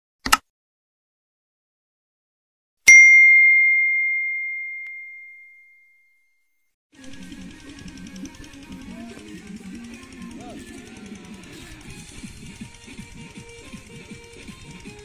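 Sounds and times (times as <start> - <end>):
notification bell ding: 2.9 - 6.1.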